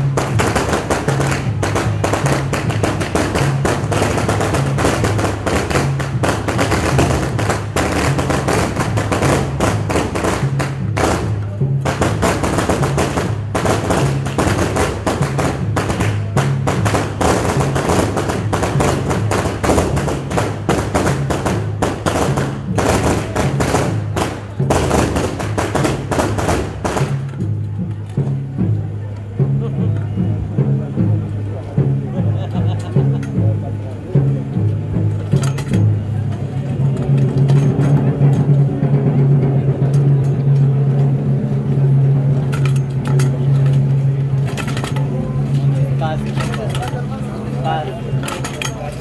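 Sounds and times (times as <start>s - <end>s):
sharp percussion hits: 0.0s - 27.6s
band music: 0.0s - 49.0s.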